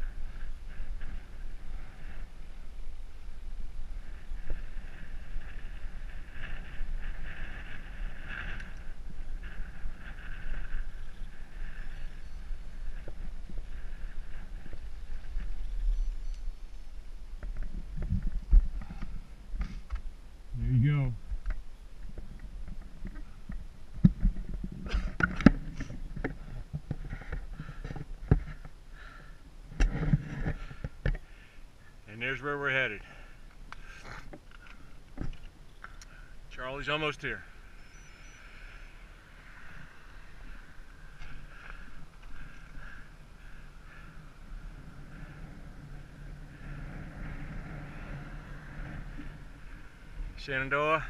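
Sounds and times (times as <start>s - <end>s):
wind buffeting microphone: 0.0s - 28.8s, 37.4s - 51.0s
camera knocking and rustling: 21.3s - 28.8s
person breathing: 28.9s - 29.5s, 38.2s - 48.8s.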